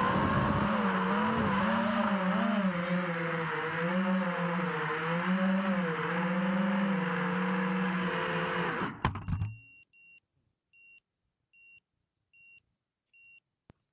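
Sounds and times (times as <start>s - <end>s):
drone motors whining: 0.0s - 9.2s.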